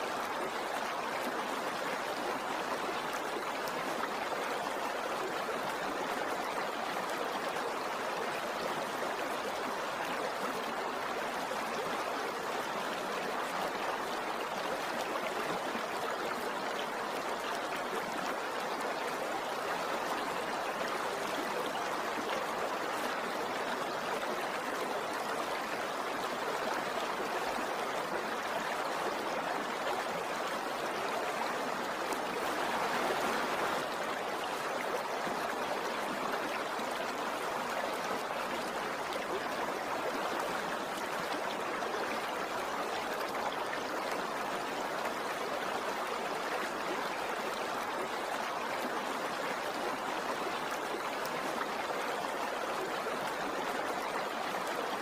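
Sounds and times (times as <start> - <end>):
river water rushing: 0.0 - 55.0.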